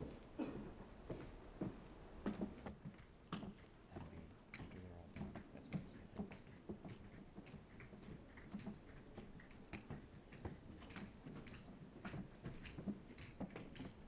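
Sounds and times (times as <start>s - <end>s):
footsteps of people walking: 0.0s - 14.0s
low room murmur: 0.0s - 14.0s.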